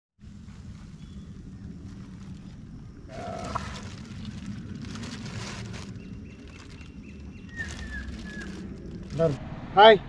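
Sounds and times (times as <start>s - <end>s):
low rumble: 0.2s - 10.0s
water splashing and sloshing: 1.6s - 9.4s.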